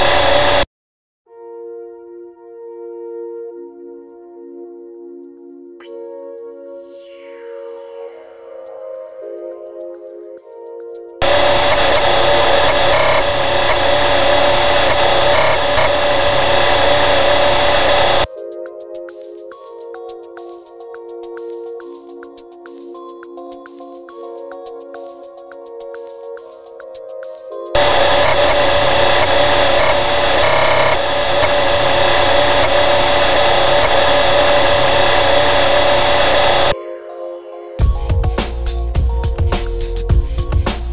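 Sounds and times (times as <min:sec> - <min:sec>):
floppy disk drive whirring: 0:00.0 - 0:00.6, 0:11.2 - 0:18.3, 0:27.8 - 0:36.8
constant hum: 0:11.2 - 0:18.3, 0:27.8 - 0:36.8
disk drive clicks: 0:11.2 - 0:18.3, 0:27.8 - 0:36.7.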